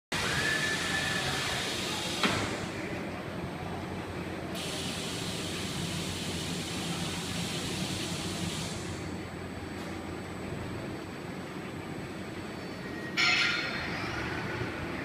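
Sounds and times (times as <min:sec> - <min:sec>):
factory machinery hum: 0:00.1 - 0:15.0
air hissing: 0:04.6 - 0:09.1.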